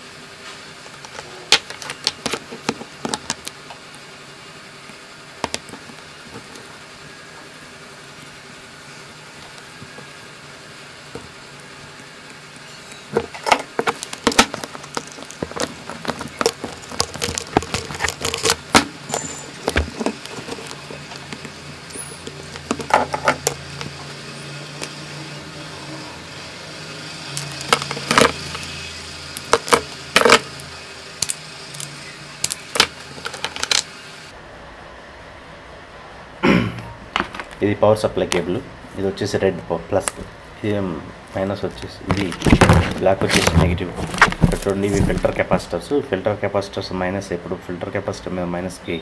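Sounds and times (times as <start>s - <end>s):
hand tools clicking and rattling: 13.1s - 24.0s.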